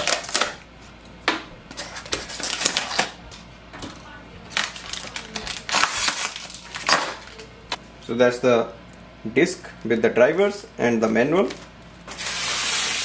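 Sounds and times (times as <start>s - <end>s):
plastic wrap crinkling: 0.0s - 0.6s, 1.7s - 3.2s, 3.9s - 7.8s.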